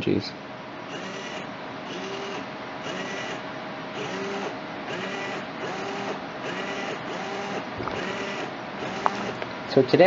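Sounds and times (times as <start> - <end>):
faint steady hum: 0.0 - 10.0
servo motor whirring: 0.9 - 3.4, 4.0 - 9.4.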